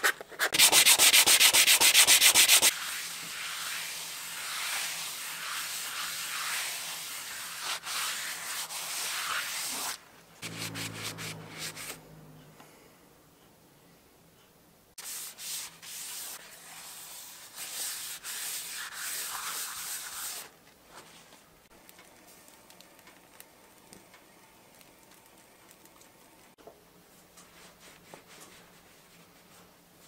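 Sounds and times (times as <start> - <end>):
paper towel scrubbing wood: 0.0 - 12.0, 15.0 - 20.5.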